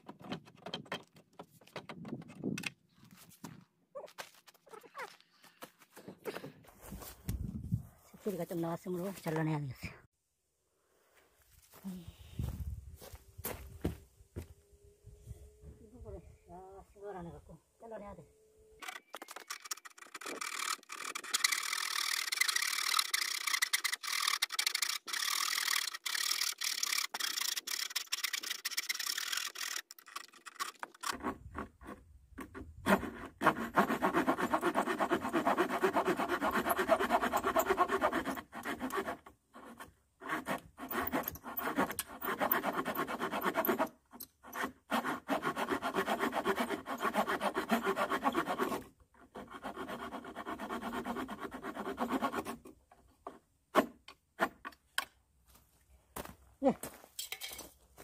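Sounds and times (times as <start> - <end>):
hand saw cutting wood: 18.8 - 54.8.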